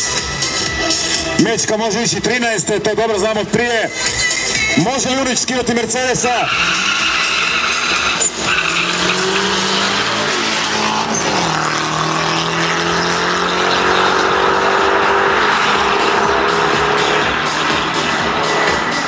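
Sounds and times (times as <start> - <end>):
racing car engines at high revs: 6.4 - 19.0.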